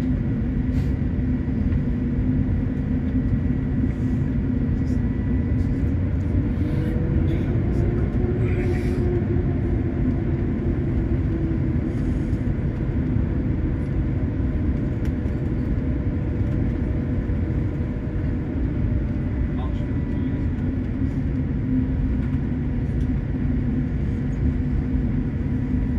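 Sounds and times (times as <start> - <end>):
airliner cabin low rumble: 0.0 - 25.9.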